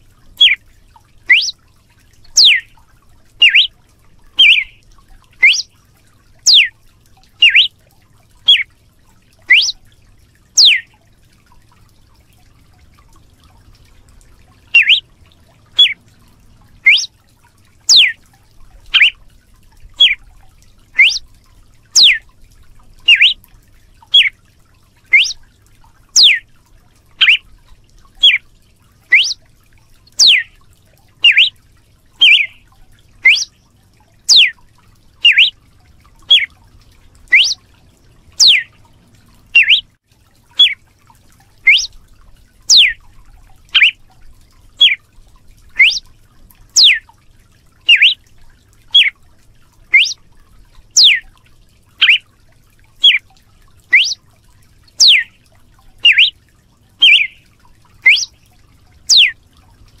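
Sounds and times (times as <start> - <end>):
bird singing whistled notes: 1.3 - 1.6, 2.4 - 2.7, 3.4 - 3.7, 4.4 - 4.8, 5.4 - 5.7, 6.5 - 6.7, 7.4 - 7.7, 9.5 - 9.8, 10.6 - 10.9, 14.7 - 15.0, 15.8 - 16.0, 16.8 - 17.1, 17.9 - 18.2, 18.9 - 19.2, 20.0 - 20.2, 21.0 - 21.2, 22.0 - 22.2, 23.1 - 23.4, 24.1 - 24.3, 25.1 - 25.4, 26.2 - 26.4, 27.2 - 27.4, 28.2 - 28.4, 29.1 - 29.4, 30.1 - 30.5, 31.2 - 31.6, 32.2 - 32.6, 33.2 - 33.6, 34.3 - 34.6, 35.2 - 35.5, 36.3 - 36.5, 37.3 - 37.6, 38.4 - 38.7, 39.6 - 39.9, 41.7 - 41.9, 42.7 - 43.0, 43.8 - 44.0, 44.8 - 45.0, 45.8 - 46.1, 46.8 - 47.0, 47.9 - 48.2, 48.9 - 49.1, 49.9 - 50.2, 51.0 - 51.2, 52.0 - 52.2, 53.9 - 54.2, 55.0 - 55.3, 56.0 - 56.4, 57.0 - 57.4, 58.0 - 58.4, 59.1 - 59.4.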